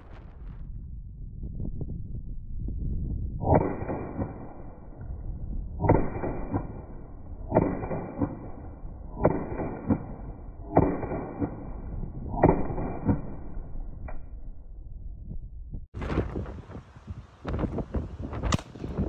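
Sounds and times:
pistol shots: 0:05.8 - 0:13.5.

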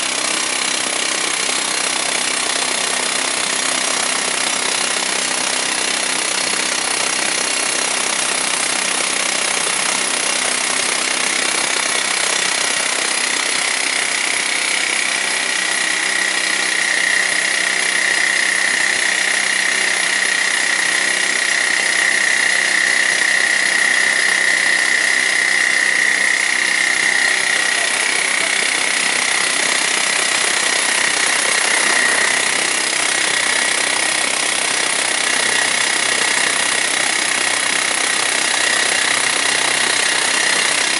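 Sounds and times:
rock drill hammering concrete: 0:00.0 - 0:40.9.

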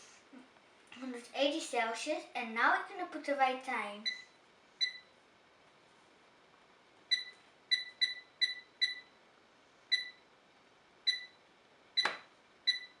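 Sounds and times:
short high beeps: 0:07.1 - 0:09.1.

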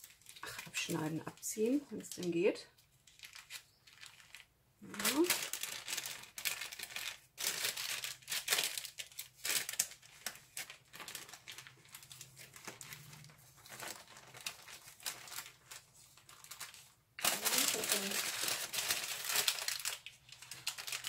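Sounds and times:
baking paper crinkling: 0:00.0 - 0:21.0.

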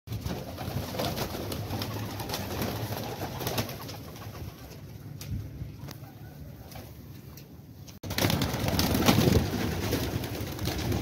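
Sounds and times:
wings flapping: 0:00.1 - 0:05.3, 0:08.0 - 0:11.0.

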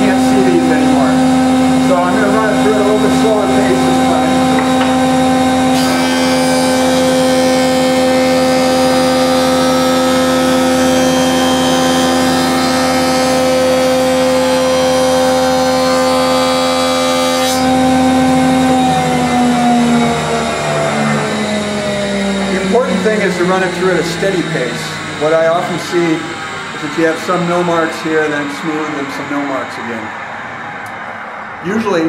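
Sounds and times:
jointer motor whine: 0:00.0 - 0:32.0
knives planing wood edge: 0:04.5 - 0:18.7.

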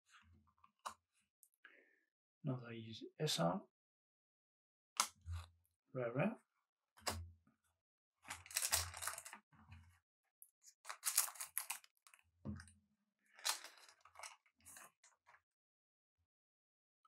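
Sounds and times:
foil wrapper crinkling and tearing: 0:08.4 - 0:09.4, 0:10.8 - 0:12.2.

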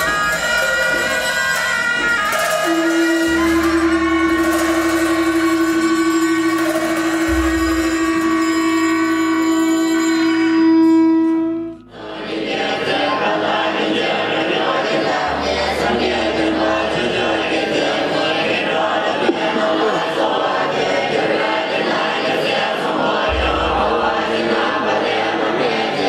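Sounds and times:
oboes sounding: 0:00.0 - 0:22.0, 0:23.1 - 0:26.0
conch shell trumpet note: 0:02.2 - 0:12.1, 0:23.3 - 0:24.8
group chanting in echoing hall: 0:11.9 - 0:26.0.

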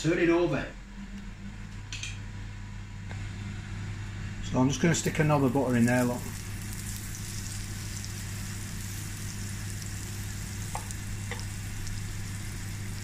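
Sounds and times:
steady low hum: 0:00.0 - 0:13.0
butter sizzling in frying pan: 0:05.4 - 0:13.0
knife tapping on pan: 0:10.7 - 0:11.5.

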